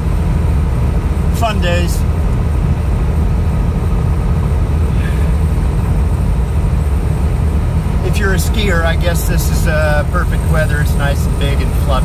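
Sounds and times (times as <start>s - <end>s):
truck rumbling on snowy road: 0.0s - 12.0s.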